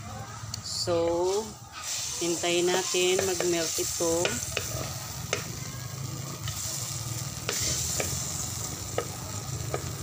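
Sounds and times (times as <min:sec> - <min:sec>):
butter sizzling in wok: 0:00.6 - 0:10.0
spatula knocking against pan: 0:02.8 - 0:03.6, 0:04.2 - 0:04.7.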